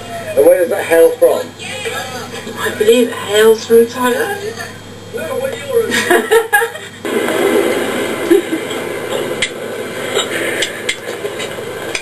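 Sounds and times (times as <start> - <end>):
muffled crowd chatter: 0.0 - 6.0.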